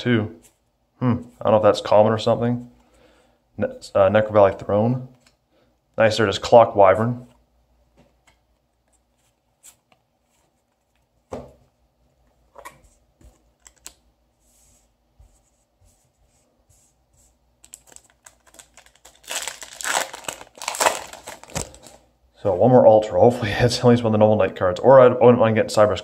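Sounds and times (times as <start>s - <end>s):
foil wrapper crinkling: 17.6s - 22.0s.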